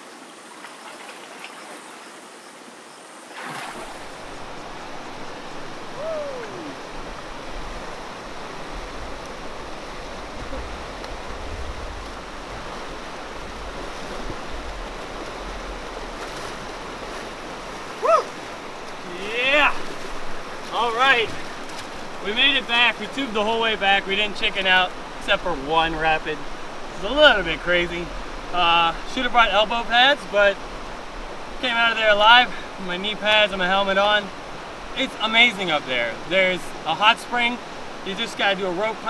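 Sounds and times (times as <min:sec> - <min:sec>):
person shouting: 0:06.0 - 0:06.8, 0:18.0 - 0:18.3.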